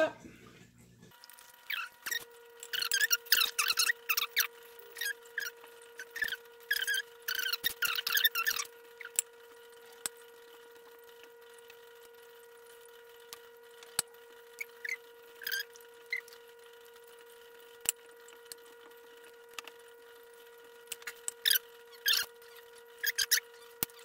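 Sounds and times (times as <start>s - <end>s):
faint hum: 0.0s - 24.0s
wet clicks and squeaks of raw meat: 1.6s - 9.3s, 13.2s - 16.5s, 20.9s - 24.0s.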